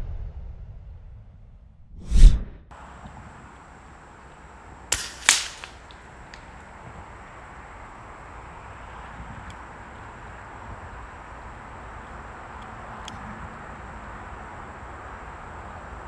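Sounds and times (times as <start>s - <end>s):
air rifle shots: 4.9s - 6.5s.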